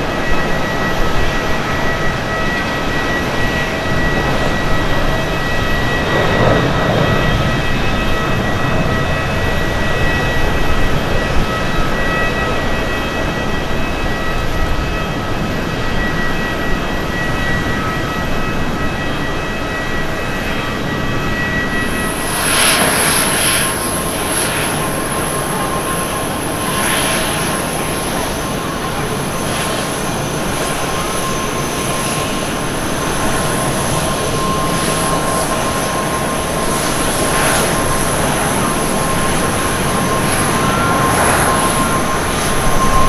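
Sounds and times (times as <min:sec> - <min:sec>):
jet engines roaring with high whine: 0:00.0 - 0:43.0.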